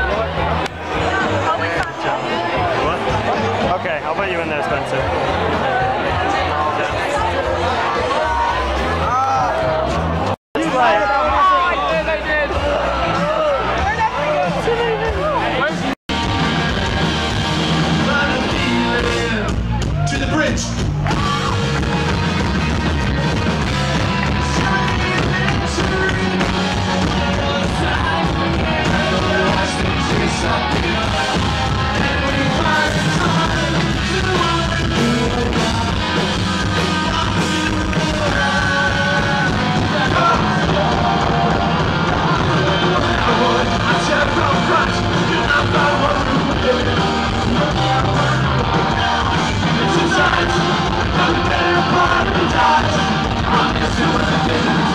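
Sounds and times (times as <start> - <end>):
rock band playing live: 0.0 - 54.9
drum kit: 5.1 - 54.9
person singing into a microphone: 24.3 - 54.9.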